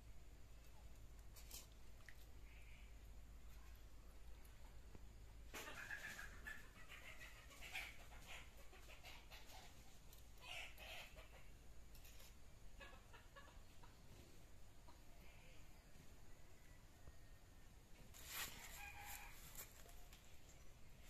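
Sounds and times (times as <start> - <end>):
chickens clucking: 4.4 - 15.9.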